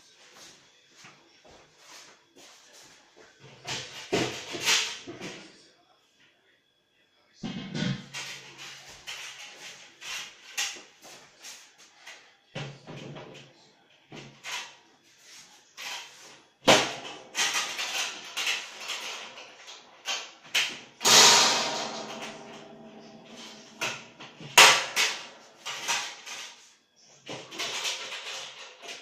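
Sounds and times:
metal drum clanking and scraping: 21.0 - 26.5
sharp knocks: 21.1 - 25.3.

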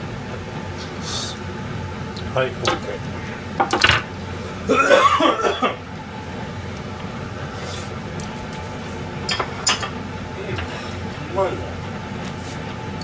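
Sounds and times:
low steady hum: 0.0 - 13.0
person coughing: 4.7 - 5.8.

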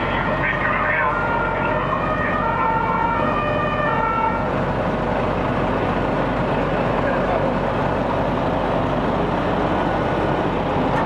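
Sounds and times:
emergency siren: 0.0 - 5.0
fire engines idling: 0.0 - 11.0.

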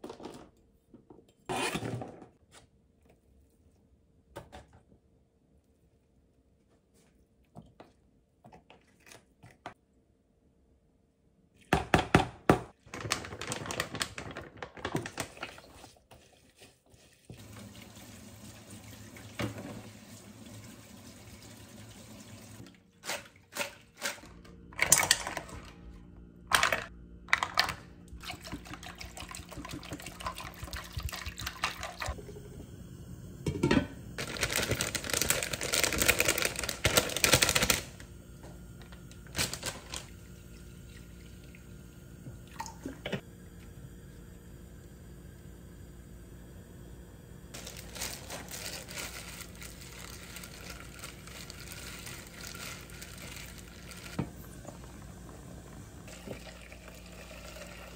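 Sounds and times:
brush scrubbing mussels: 15.9 - 17.3
tap water running into sink: 17.3 - 22.7
dried seaweed rustling: 47.6 - 54.2.

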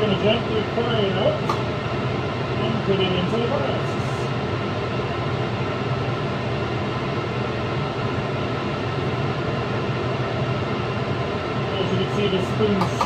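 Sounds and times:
blower fan whooshing: 0.0 - 13.0.

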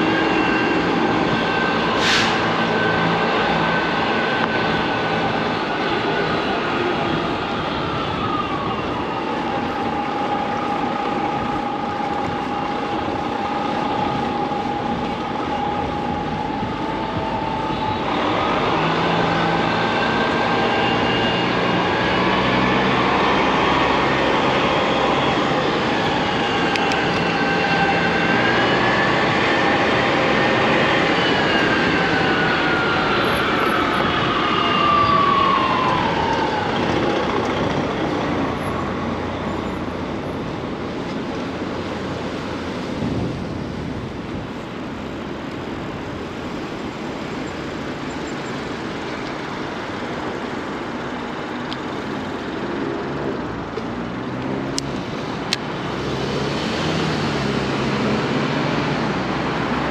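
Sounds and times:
whining vehicle tones: 0.0 - 44.1
heavy vehicle rumble: 0.0 - 59.9
street traffic hum: 0.0 - 59.9.

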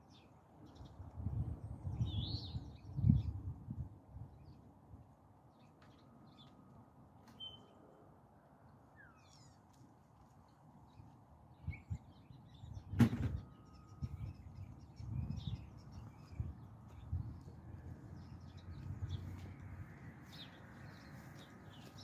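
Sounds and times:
small birds chirping: 1.7 - 3.5, 5.5 - 7.8, 8.9 - 22.0.

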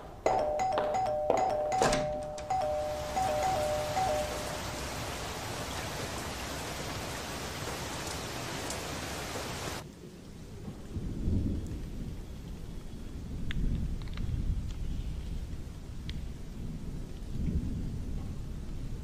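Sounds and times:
steady rain hiss: 2.4 - 19.0
low rumbles of thunder: 10.2 - 19.0.

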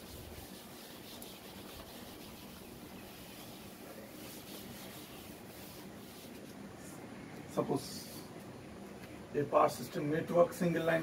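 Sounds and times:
eraser rubbing on chalkboard: 0.0 - 6.5.

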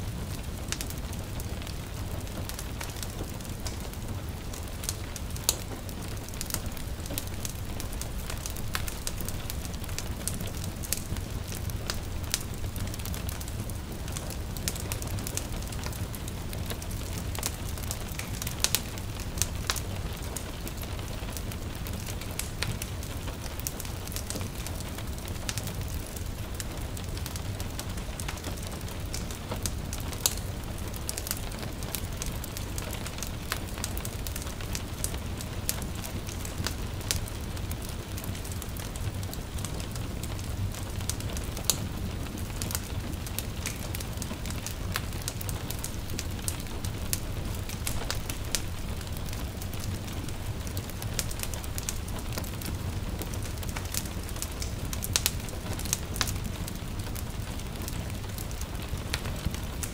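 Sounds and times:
light rain hiss: 0.0 - 59.9
wood fire crackling and popping: 0.0 - 59.9.

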